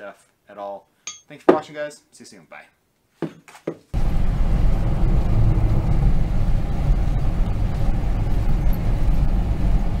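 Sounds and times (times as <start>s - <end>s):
truck engine rumble from inside: 4.0s - 10.0s.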